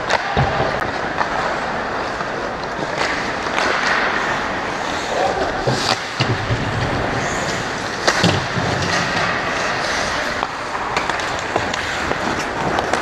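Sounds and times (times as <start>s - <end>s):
skates scraping on ice: 0.0s - 13.0s
stick and puck knocks: 8.0s - 9.5s, 10.3s - 13.0s.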